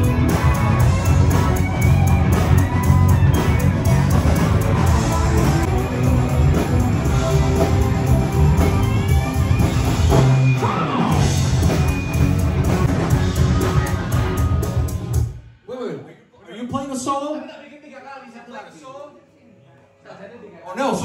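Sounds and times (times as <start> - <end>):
electric guitar: 0.0 - 15.5
drum kit: 0.0 - 15.6
rock band playing live: 0.0 - 15.6.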